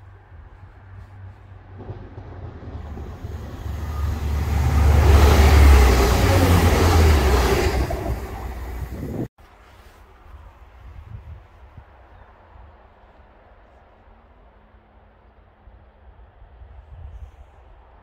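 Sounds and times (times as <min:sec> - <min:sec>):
deep engine rumble: 0:00.0 - 0:09.3
train wheels rushing on rails: 0:00.0 - 0:09.3.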